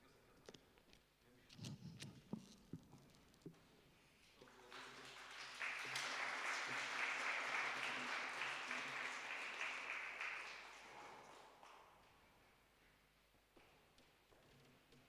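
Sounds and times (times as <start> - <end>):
audience applauding: 4.4 - 12.1.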